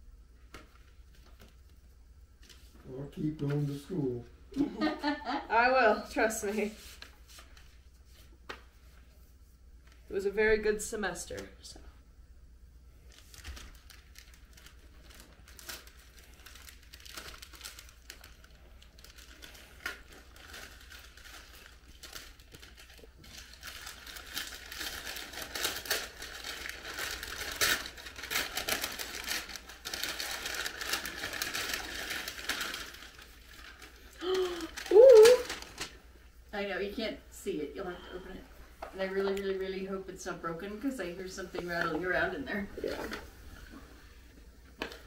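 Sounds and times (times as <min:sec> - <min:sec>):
wrapping paper rustling and tearing: 0:06.1 - 0:10.0, 0:12.9 - 0:36.2, 0:39.0 - 0:45.0.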